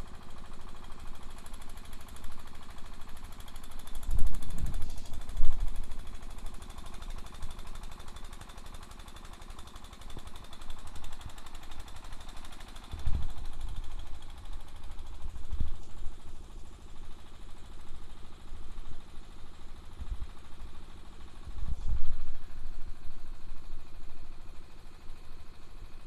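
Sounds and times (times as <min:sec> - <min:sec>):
diesel engine knocking: 0:00.0 - 0:26.0.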